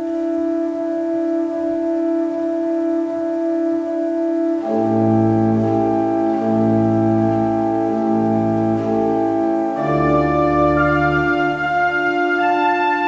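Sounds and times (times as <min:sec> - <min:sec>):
organ playing sustained chords: 0:00.0 - 0:13.0
deep organ bass note: 0:04.6 - 0:13.0.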